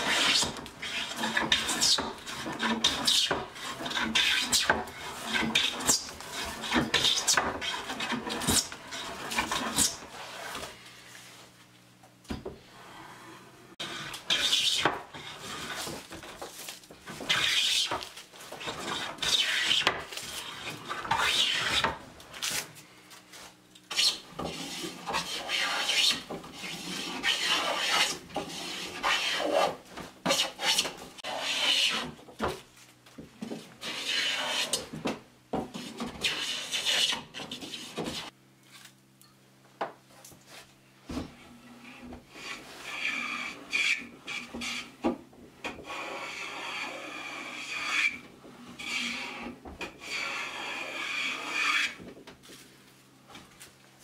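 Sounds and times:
hand plane shaving wood: 0.0s - 10.7s, 13.8s - 22.0s, 23.9s - 32.2s, 33.8s - 34.9s, 35.7s - 38.3s, 41.5s - 44.9s, 45.8s - 52.0s.

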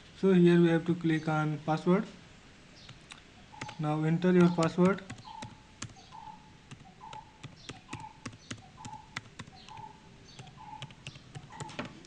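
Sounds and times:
keyboard keys clicking: 2.9s - 6.1s, 6.7s - 12.0s.

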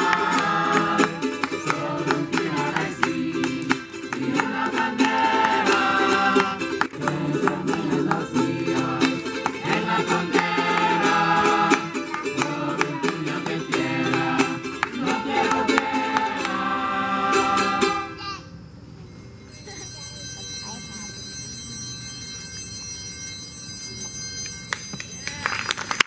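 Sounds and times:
group of voices singing: 0.0s - 18.2s
small string instrument strummed: 0.0s - 18.2s.

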